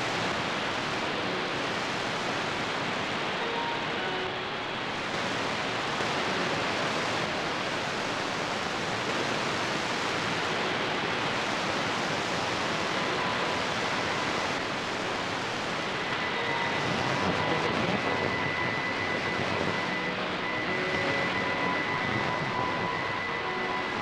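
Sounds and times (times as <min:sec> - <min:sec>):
radio static hiss: 0:00.0 - 0:24.0.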